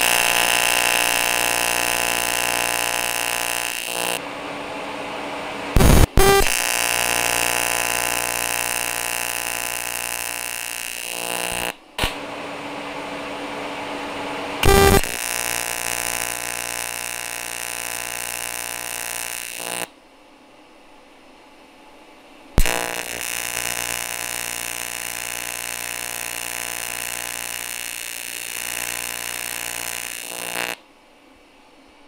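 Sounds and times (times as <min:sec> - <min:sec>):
welding arc buzzing: 0:00.0 - 0:04.2, 0:05.7 - 0:12.2, 0:14.6 - 0:19.9, 0:22.6 - 0:30.8.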